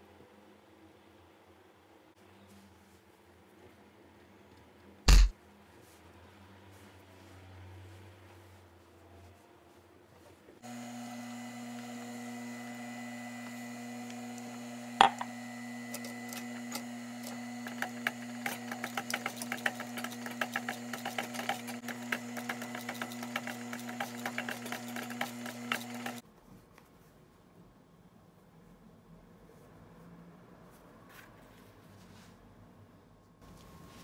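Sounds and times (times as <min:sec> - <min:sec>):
sewing machine motor humming: 0:10.6 - 0:26.2
needle stitching with rapid ticking: 0:16.0 - 0:26.2.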